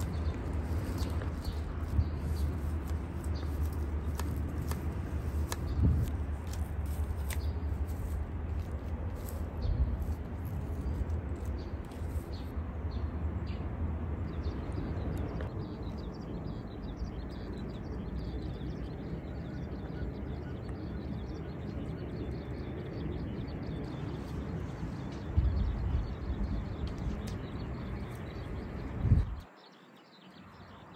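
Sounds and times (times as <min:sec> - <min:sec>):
garden scissors snipping: 0:00.0 - 0:12.6
steady low rumble: 0:00.0 - 0:29.4
small birds chirping: 0:00.0 - 0:30.9.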